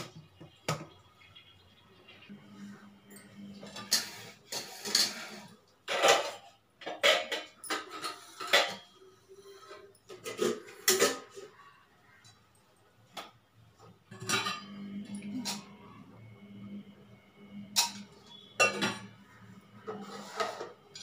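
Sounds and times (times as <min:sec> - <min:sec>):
metal pots clanking: 0:03.1 - 0:11.6, 0:14.1 - 0:15.9, 0:17.8 - 0:21.0.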